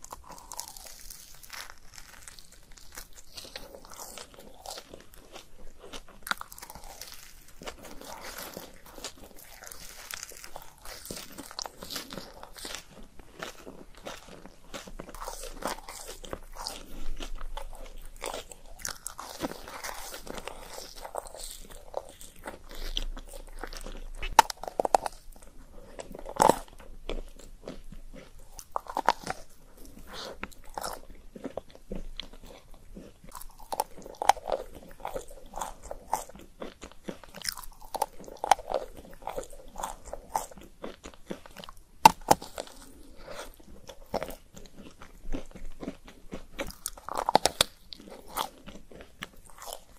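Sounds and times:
wet chewing: 0.0s - 49.9s
chocolate shell cracking: 42.0s - 42.8s.

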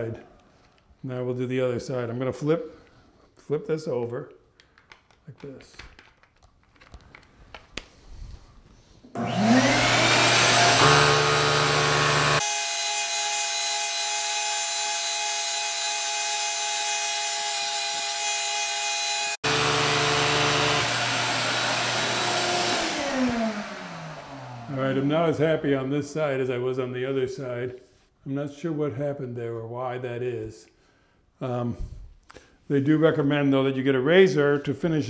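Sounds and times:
vacuum hair clipper motor whining: 9.2s - 17.6s, 19.1s - 25.3s.

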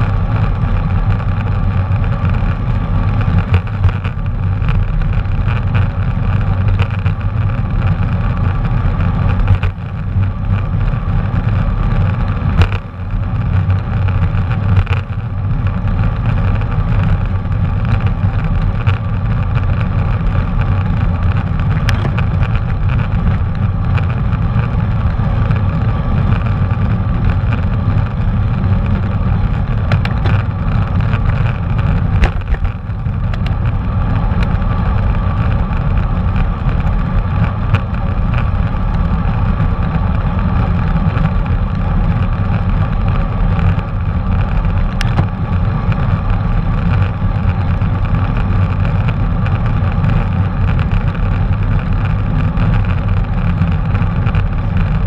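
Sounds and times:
tyre and road noise: 0.0s - 55.0s
wind rumbling on microphone: 0.0s - 55.0s.

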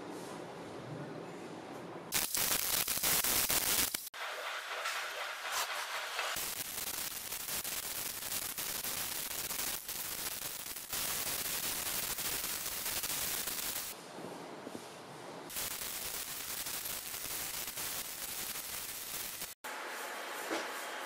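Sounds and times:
sandpaper sanding metal: 2.4s - 10.2s.

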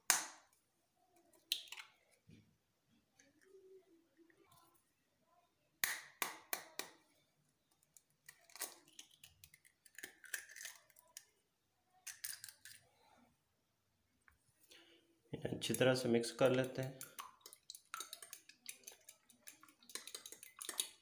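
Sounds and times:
egg tapped to crack shell: 5.8s - 7.0s
eggshell crackling and rustling: 7.6s - 11.4s, 15.6s - 21.0s.

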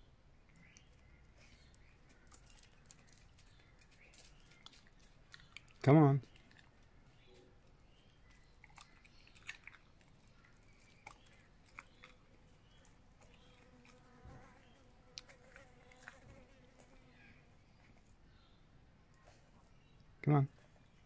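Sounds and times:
dog licking and chewing: 8.3s - 14.0s.

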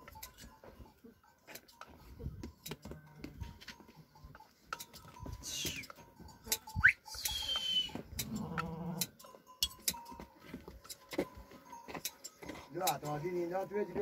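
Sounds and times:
high whistles and chirps: 5.4s - 5.9s, 6.8s - 8.0s.

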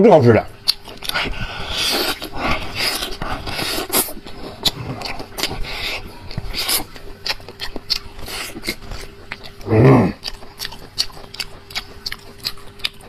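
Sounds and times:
person sucking and chewing bone: 0.5s - 13.0s.

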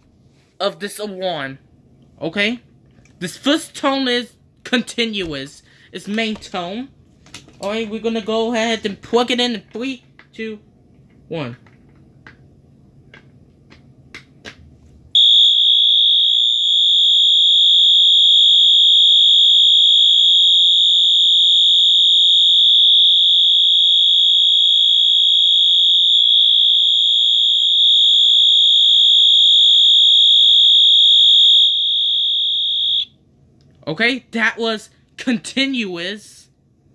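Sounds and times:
fire alarm horn tone: 15.2s - 33.1s.

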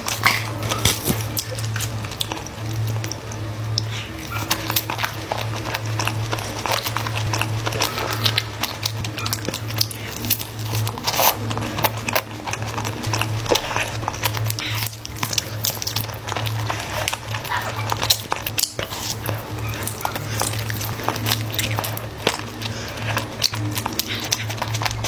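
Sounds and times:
wet mouth clicks and smacks: 0.0s - 12.3s
person chewing food: 0.0s - 25.0s
steady low hum: 0.0s - 25.0s.

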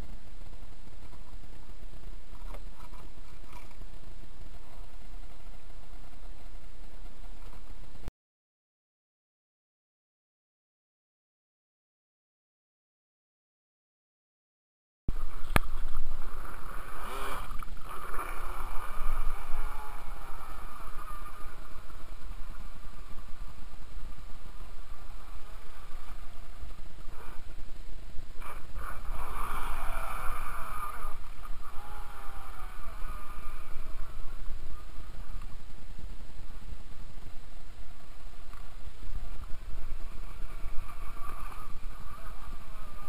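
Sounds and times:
steady low rumble: 0.0s - 8.1s, 15.1s - 43.0s
toy boat motor whining: 16.2s - 22.8s, 28.4s - 35.4s, 40.0s - 43.0s.

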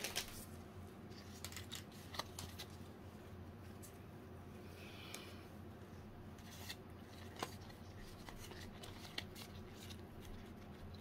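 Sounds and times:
cards rubbing and clicking: 6.4s - 11.0s.

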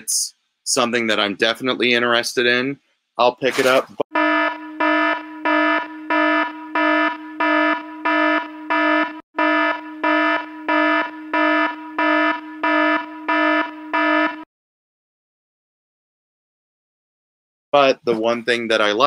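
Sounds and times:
electronic alarm beeping: 4.1s - 14.5s.

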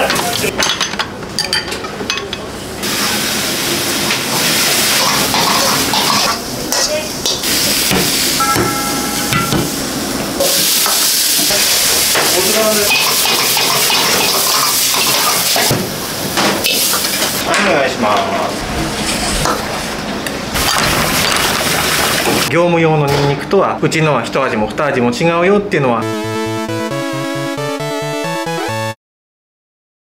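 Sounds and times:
dishes clinking: 0.1s - 2.5s
food sizzling in a wok: 2.8s - 8.4s, 9.6s - 17.5s.

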